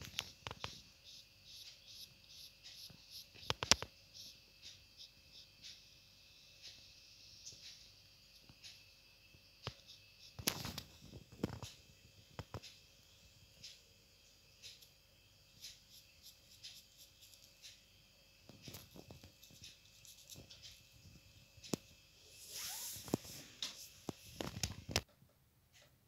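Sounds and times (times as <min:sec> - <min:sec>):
paintbrush scratching on paper: 0:00.0 - 0:06.0, 0:15.6 - 0:17.8, 0:18.6 - 0:20.9
small clicks: 0:02.6 - 0:04.0
brief hiss: 0:22.2 - 0:24.4.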